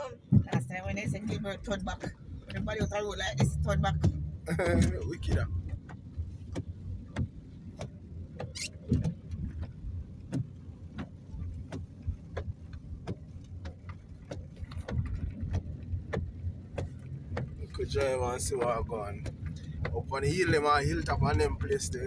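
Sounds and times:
car engine and road rumble: 0:00.0 - 0:22.0.

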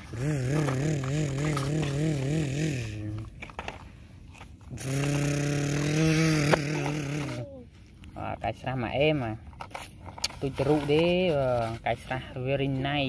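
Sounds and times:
person humming engine noise: 0:00.0 - 0:03.5, 0:04.7 - 0:07.7.

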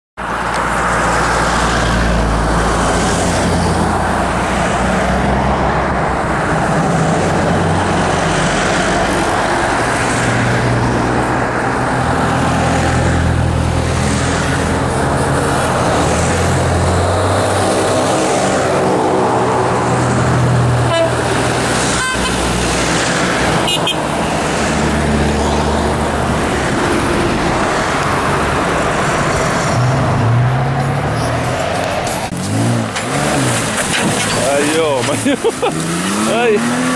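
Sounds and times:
cars driving past: 0:00.2 - 0:36.9
car horns tooting: 0:20.8 - 0:22.5, 0:23.6 - 0:24.2.

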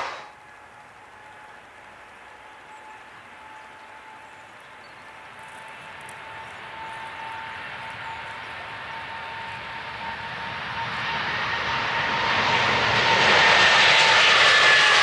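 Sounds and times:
jet engines whining: 0:00.0 - 0:00.5, 0:05.1 - 0:15.0.

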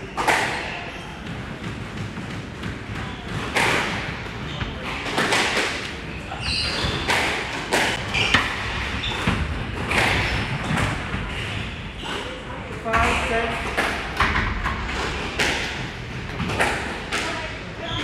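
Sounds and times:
squash ball hits: 0:00.0 - 0:11.3, 0:13.7 - 0:17.4.

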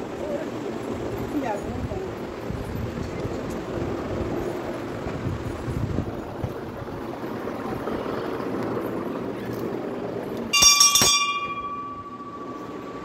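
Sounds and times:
brass bell ringing: 0:10.5 - 0:13.0.

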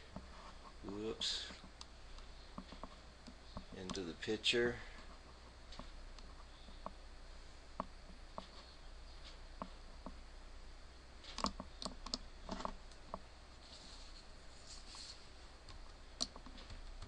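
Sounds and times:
low steady hum: 0:00.0 - 0:17.0
computer mouse clicks: 0:11.2 - 0:13.1.

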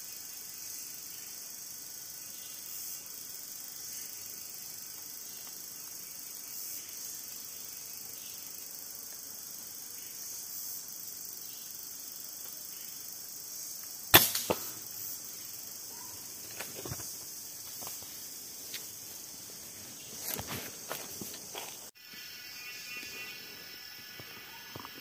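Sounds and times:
air rifle firing: 0:14.1 - 0:14.9.

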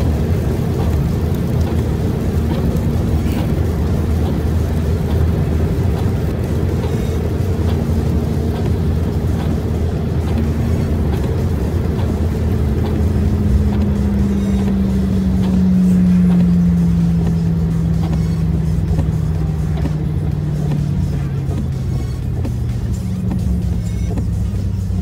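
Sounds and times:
car engine and road drone: 0:00.0 - 0:25.0
tyres hissing on wet road: 0:00.0 - 0:25.0
humming tone: 0:10.2 - 0:25.0.

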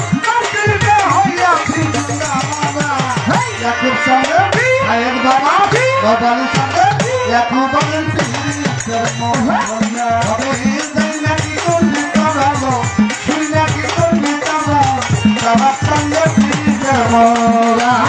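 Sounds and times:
harmonium: 0:00.0 - 0:18.0
man singing: 0:00.0 - 0:18.0.

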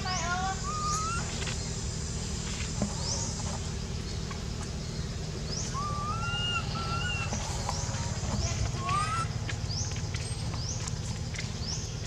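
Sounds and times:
insects chirping: 0:00.0 - 0:12.0
steady low rumble: 0:00.0 - 0:12.0
baby monkey whining cry: 0:00.6 - 0:01.3, 0:05.7 - 0:07.3.

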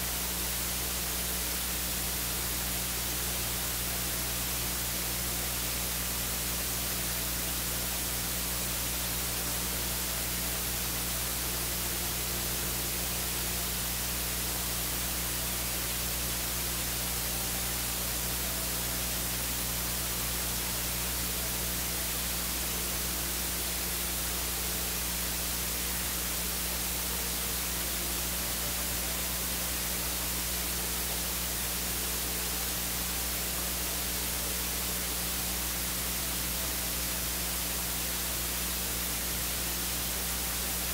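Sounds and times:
low electrical hum: 0:00.0 - 0:40.9
static hiss: 0:00.0 - 0:40.9.

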